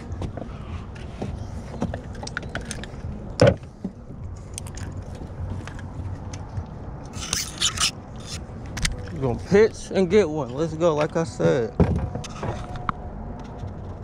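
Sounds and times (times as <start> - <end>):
fishing gear clicks and rattles: 0.9 - 9.7.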